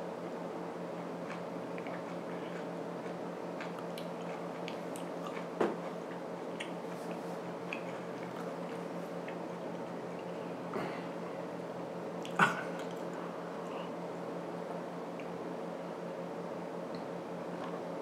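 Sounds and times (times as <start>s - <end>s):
steady low hum: 0.0s - 18.0s
soft chewing with mouth clicks: 1.0s - 10.7s, 12.2s - 14.0s.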